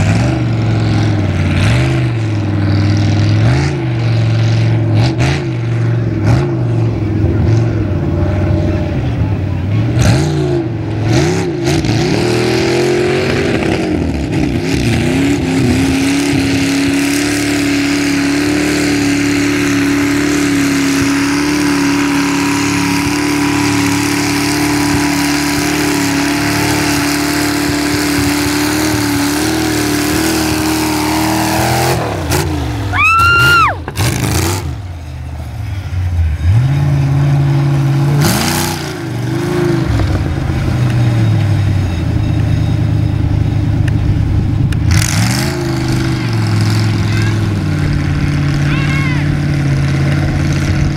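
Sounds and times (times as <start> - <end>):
tires spinning in mud: 0.0 - 50.9
truck engine revving: 0.0 - 50.9
high rising squeal: 29.1 - 34.8.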